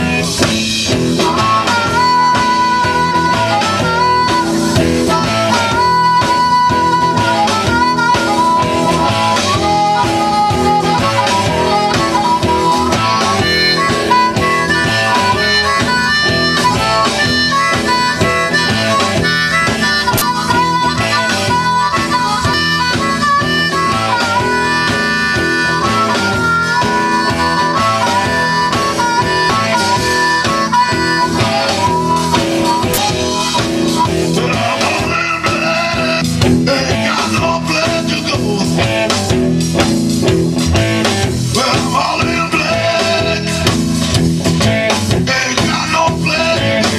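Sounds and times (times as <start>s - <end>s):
amplified harmonica solo: 0.0s - 46.9s
drums: 0.0s - 46.9s
electric guitar: 0.0s - 46.9s.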